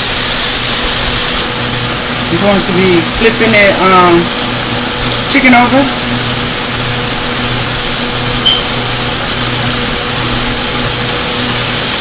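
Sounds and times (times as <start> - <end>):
chicken sizzling in frying grease: 8.2 - 10.0.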